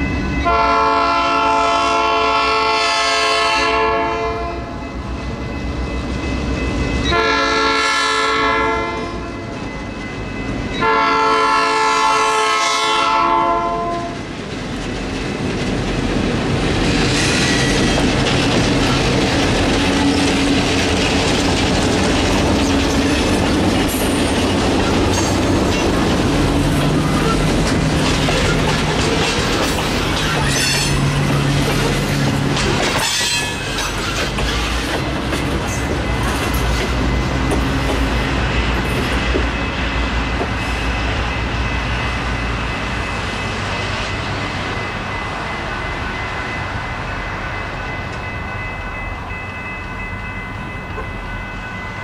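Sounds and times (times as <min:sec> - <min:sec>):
diesel locomotives passing: 0:00.0 - 0:52.0
train wheels clicking and squealing: 0:16.8 - 0:52.0.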